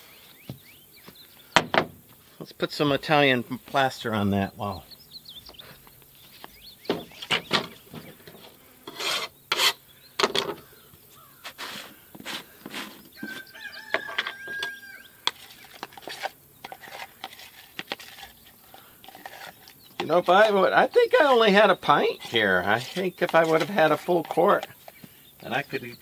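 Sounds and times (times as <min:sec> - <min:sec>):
trowel scraping plaster: 0:08.8 - 0:09.8, 0:11.3 - 0:13.0, 0:15.2 - 0:25.6
trowel squeak: 0:19.1 - 0:24.8.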